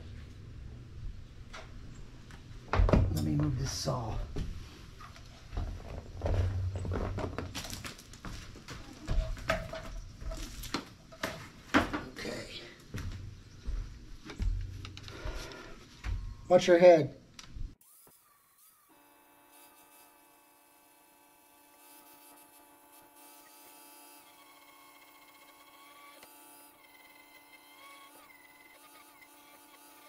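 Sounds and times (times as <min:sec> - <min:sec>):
footsteps on wooden floor: 0:04.3 - 0:12.0, 0:12.8 - 0:16.4
angle grinder whine: 0:21.5 - 0:30.0.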